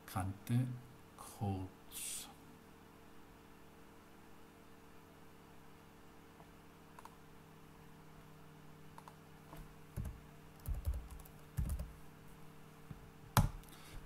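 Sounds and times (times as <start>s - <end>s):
low steady hum: 0.0s - 14.0s
typing on computer keyboard: 10.0s - 11.9s.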